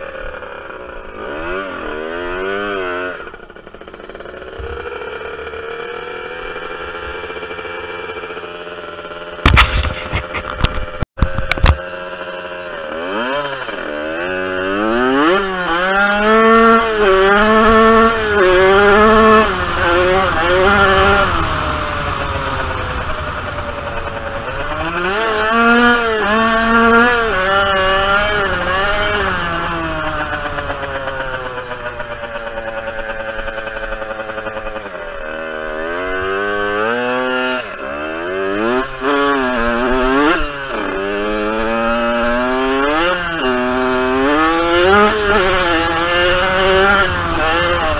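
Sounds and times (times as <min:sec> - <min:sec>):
two-stroke motorbike engine revving: 0:00.0 - 0:47.9.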